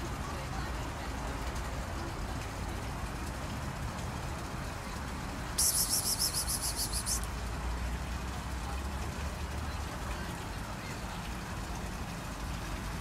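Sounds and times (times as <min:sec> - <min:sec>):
high-pitched rapid trill: 0:05.6 - 0:07.2.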